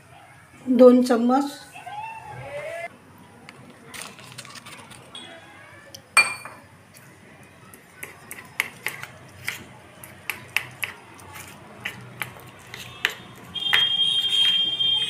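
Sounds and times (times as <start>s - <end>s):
spoon clinking against steel bowl: 6.2s - 6.6s.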